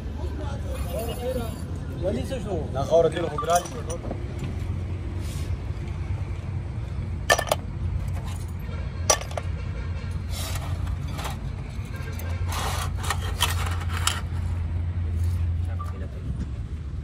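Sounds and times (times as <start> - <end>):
metal parts clinking: 3.4 - 4.1, 7.3 - 9.6, 10.4 - 14.5.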